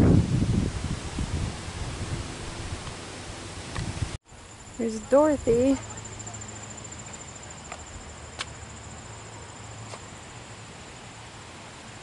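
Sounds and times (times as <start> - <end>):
insects trilling: 4.3 - 12.0.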